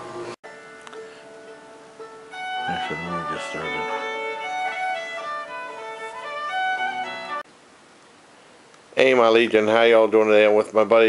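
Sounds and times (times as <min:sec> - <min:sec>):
music with held string notes: 0:00.4 - 0:07.5
brief voice: 0:02.7 - 0:04.0.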